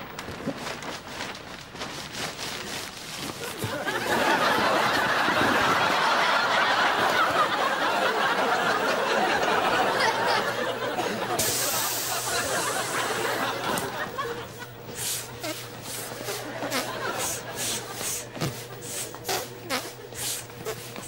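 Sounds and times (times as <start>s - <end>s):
plastic bag rustling: 0.0s - 3.9s
audience laughing: 3.4s - 21.0s
air hissing out of inflatable: 11.4s - 13.4s, 14.9s - 21.0s.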